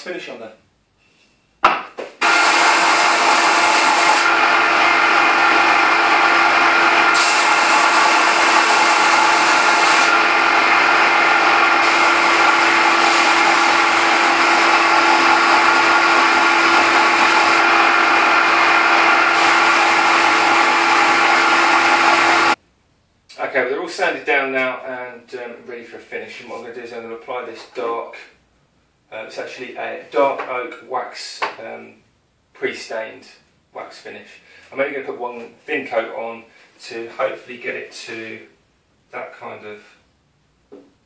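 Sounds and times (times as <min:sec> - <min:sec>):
sander motor hum: 0:02.2 - 0:22.6
wood hissing on sanding belt: 0:02.2 - 0:22.6.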